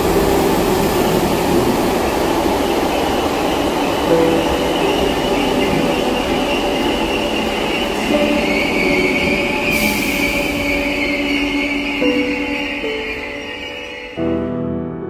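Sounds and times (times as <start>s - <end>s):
train running noise: 0.0s - 14.6s
wheel and brake squeal: 4.2s - 14.4s.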